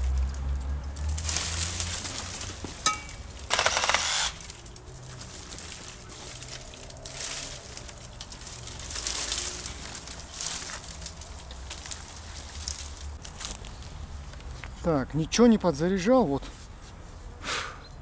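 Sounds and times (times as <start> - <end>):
branches and brush rustling: 0.0 - 17.4
reciprocating saw cutting branch: 3.5 - 4.6.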